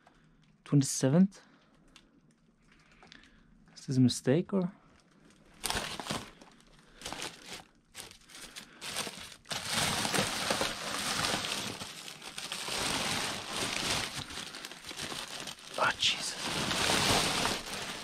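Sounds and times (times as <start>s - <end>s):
plastic bags crinkling: 4.9s - 18.0s.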